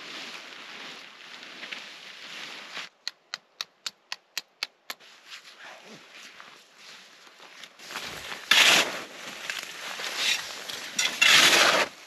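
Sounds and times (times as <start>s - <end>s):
shuffling through snow: 0.0s - 3.0s, 5.0s - 12.0s
sharp evenly spaced clicks: 3.0s - 5.0s.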